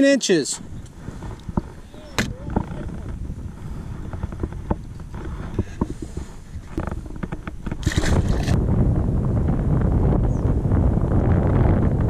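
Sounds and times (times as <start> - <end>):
wind rumble on microphone: 0.6 - 12.0
clicks and knocks in plastic kayak: 1.2 - 8.6.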